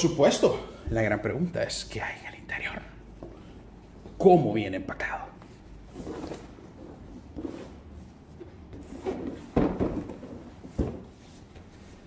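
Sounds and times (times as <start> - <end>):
cardboard box knocking on table: 9.3 - 11.1.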